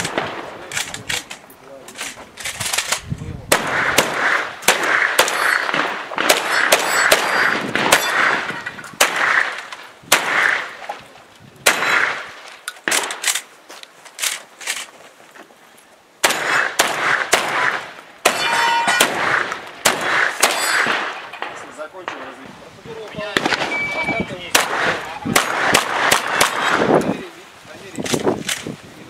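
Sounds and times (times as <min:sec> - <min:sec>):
shotgun shots: 0:00.0 - 0:01.3, 0:02.4 - 0:10.8, 0:11.6 - 0:13.5, 0:16.2 - 0:22.4, 0:23.2 - 0:27.0
metallic clang of steel targets: 0:05.2 - 0:09.0, 0:18.3 - 0:19.5, 0:20.4 - 0:21.6.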